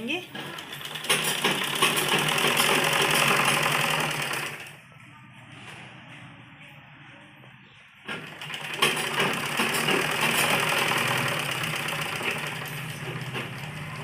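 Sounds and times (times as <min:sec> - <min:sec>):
sewing machine running: 0:00.3 - 0:04.8, 0:08.1 - 0:14.0.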